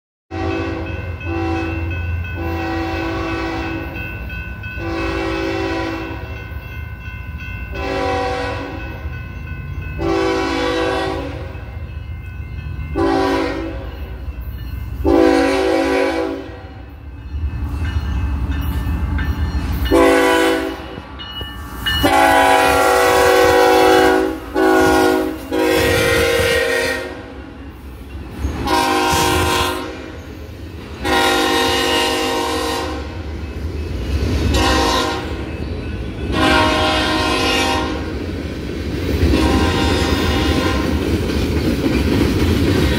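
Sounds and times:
locomotive horn blasts: 0.3s - 4.0s, 4.8s - 6.3s, 7.7s - 8.9s, 10.0s - 11.6s, 13.0s - 14.0s, 15.0s - 16.9s, 19.9s - 21.0s, 22.0s - 27.4s, 28.6s - 30.2s, 31.0s - 33.2s, 34.5s - 35.4s, 36.3s - 38.2s, 39.3s - 40.9s.

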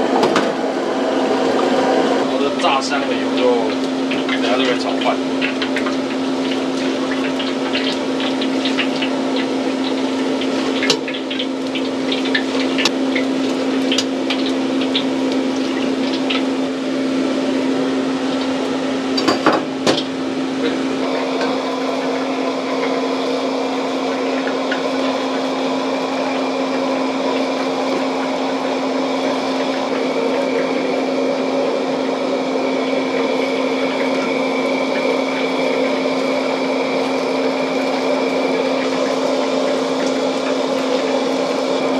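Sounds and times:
kitchen clatter: 19.2s - 20.1s.

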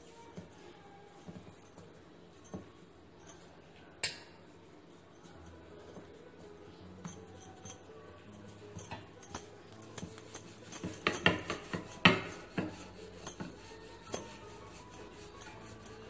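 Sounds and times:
rolling pin knocking on dough: 9.8s - 16.0s.

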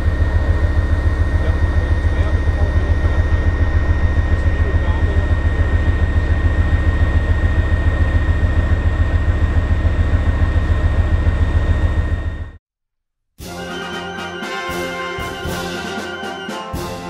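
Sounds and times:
diesel engine idling: 0.0s - 12.6s
high steady whine: 0.0s - 12.6s.

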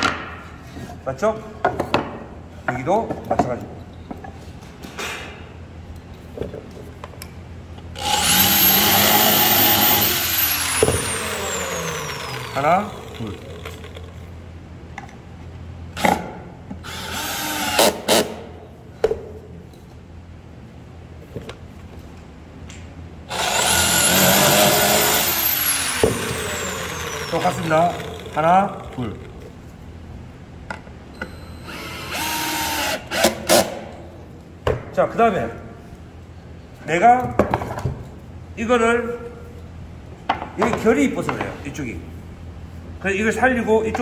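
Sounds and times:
electric drill whining: 8.0s - 14.1s, 23.3s - 29.0s, 31.6s - 33.2s.

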